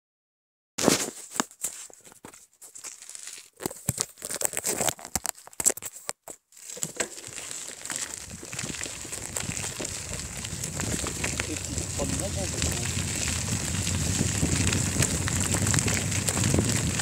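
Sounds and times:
phone handling crackles and rustles: 0.8 - 9.9
steady rushing noise: 9.5 - 17.0.

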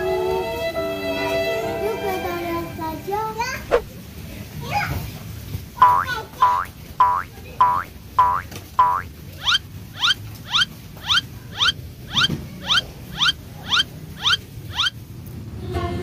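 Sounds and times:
cartoon squeaky steps: 5.8 - 15.0.

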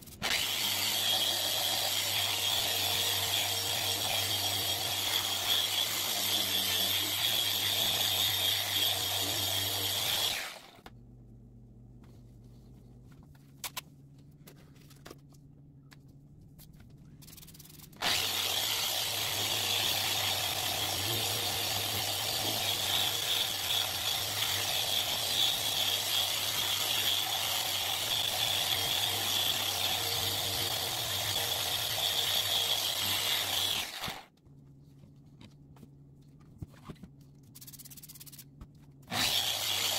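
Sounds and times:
orbital sander on acrylic sheet: 0.1 - 10.7, 18.0 - 34.3, 39.1 - 39.9.

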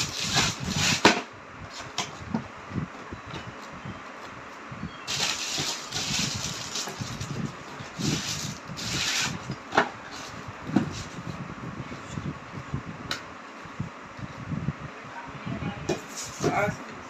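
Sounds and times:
plastic and cardboard rustling: 0.0 - 2.5, 5.1 - 11.4.

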